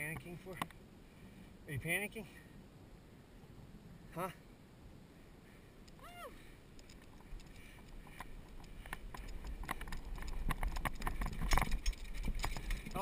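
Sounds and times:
low wind rumble: 0.0s - 13.0s
bike rattling over bumps: 6.8s - 13.0s.

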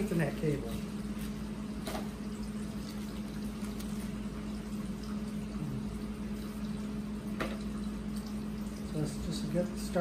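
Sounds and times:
room noise hum and hiss: 0.0s - 10.0s.

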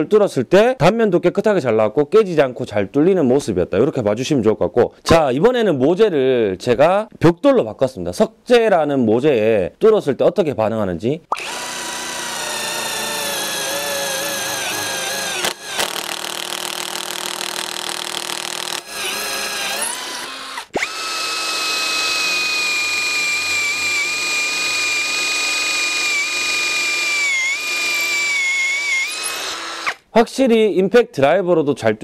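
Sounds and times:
drill motor whine: 11.3s - 30.0s
impact driver drilling into brick: 11.3s - 30.0s.

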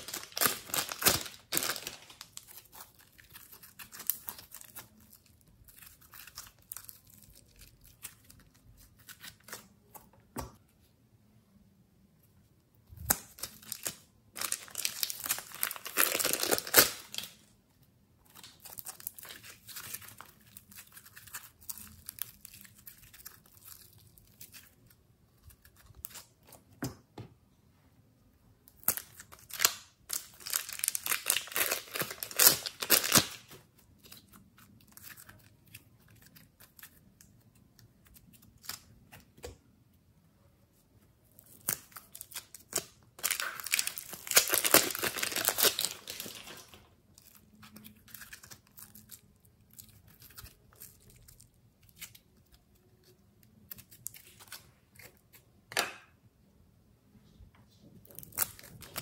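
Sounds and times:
plastic bags crinkling: 0.0s - 7.9s, 13.4s - 17.4s, 29.4s - 33.6s, 42.0s - 49.1s.

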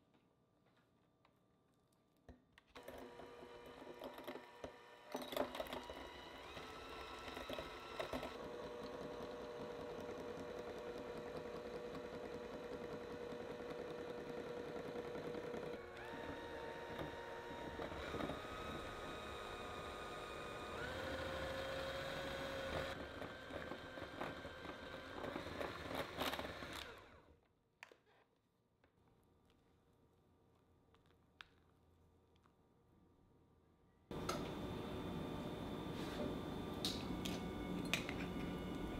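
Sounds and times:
electric hand mixer whining: 2.8s - 27.3s, 34.1s - 38.9s.

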